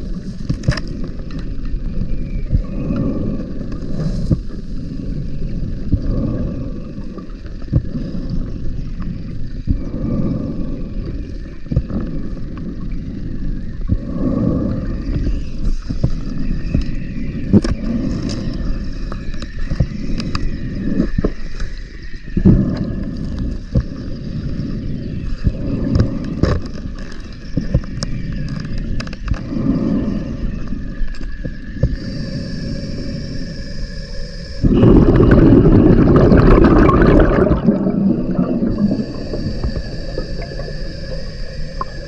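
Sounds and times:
underwater water wash: 0.0 - 42.0
diver breathing through regulator: 2.6 - 9.1, 9.7 - 19.2, 22.4 - 26.8, 29.3 - 42.0
exhaled bubbles gushing: 34.6 - 42.0.

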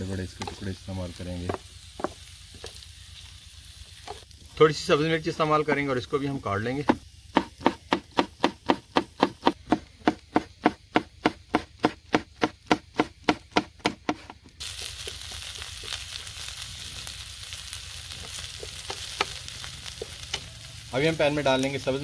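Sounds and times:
vegetables sizzling in oil: 0.0 - 9.6, 14.6 - 22.0
knife chopping on cutting board: 7.4 - 14.4.

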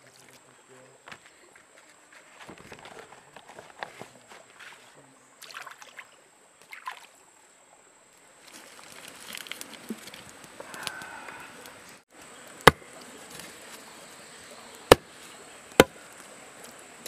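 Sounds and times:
shallow running water: 3.3 - 17.0
wet leaf rustling: 8.4 - 17.0.

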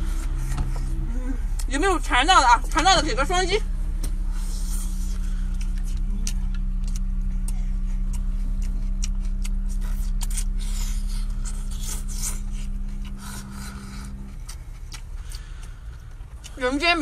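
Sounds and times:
loud steady low hum: 0.0 - 17.0
wet mouth eating sounds: 4.0 - 17.0.

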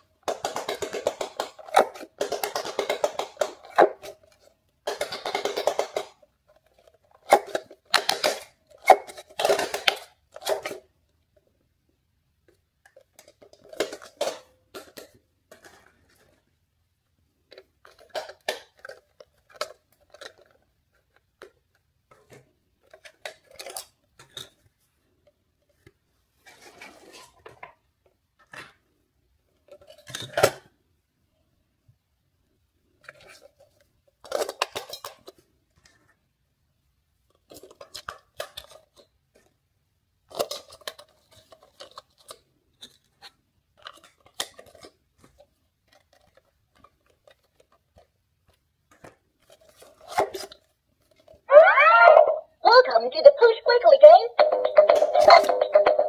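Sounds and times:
pop-it toy popping: 51.6 - 56.0.

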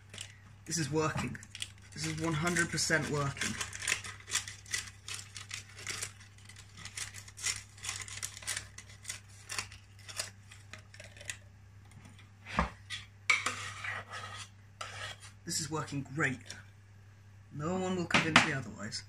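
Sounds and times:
paper cupcake cases crinkling: 0.0 - 12.0.

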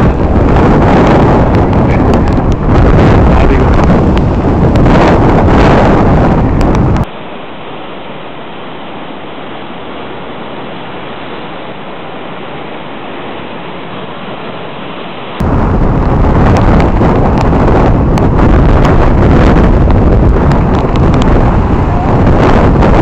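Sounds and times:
surf breaking on rocks: 0.0 - 7.1, 15.4 - 23.0
wind buffeting microphone: 0.0 - 7.1, 15.4 - 23.0.

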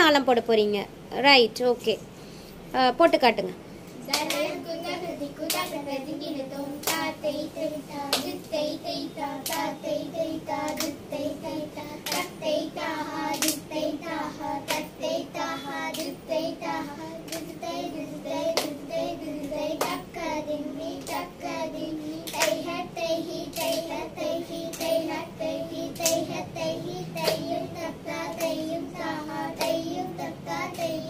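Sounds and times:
girls chanting syllables: 4.0 - 31.0
sharp hand claps: 4.1 - 4.6, 5.4 - 5.8, 6.8 - 7.2, 8.0 - 8.5, 9.4 - 9.7, 10.6 - 11.0, 12.0 - 12.4, 13.3 - 13.7, 14.6 - 15.0, 15.9 - 16.2, 17.2 - 17.6, 18.5 - 18.8, 19.4 - 20.0, 22.2 - 22.7, 23.5 - 24.0, 24.7 - 25.1, 26.0 - 26.3, 27.2 - 27.5, 28.3 - 28.6, 29.6 - 29.8.

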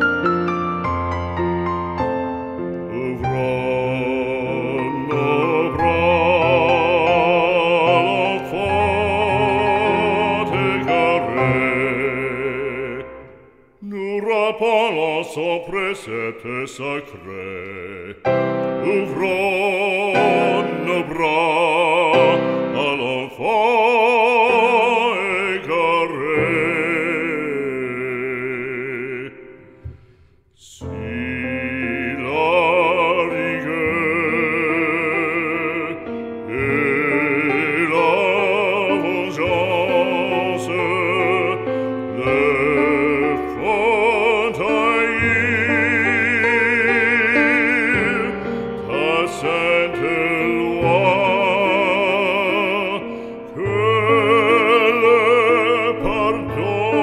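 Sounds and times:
instrumental accompaniment: 0.0 - 13.8
operatic solo singing: 2.6 - 57.0.

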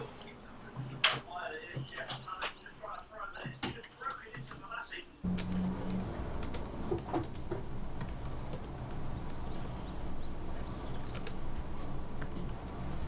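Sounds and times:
low background hum: 0.0 - 13.0
keyboard keystroke clicks: 10.5 - 11.4.

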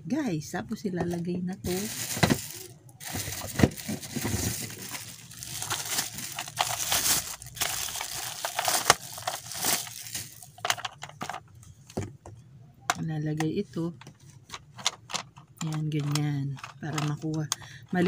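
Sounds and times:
plastic bag crinkling: 1.6 - 11.4.

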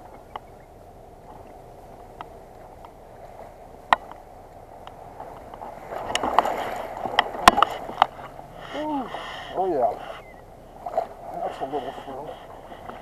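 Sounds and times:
water splashing and sloshing: 0.0 - 13.0
sharp clicks and knocks: 4.8 - 8.2.

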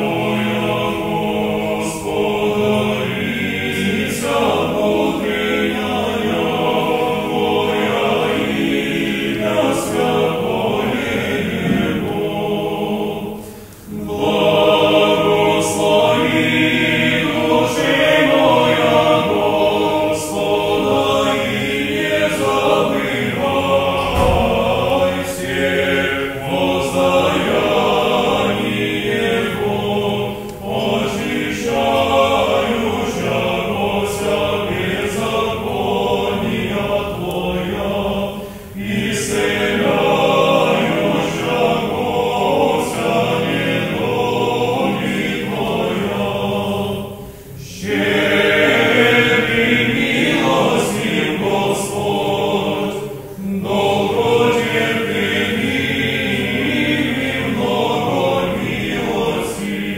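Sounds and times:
men's choir chanting: 0.0 - 59.9.

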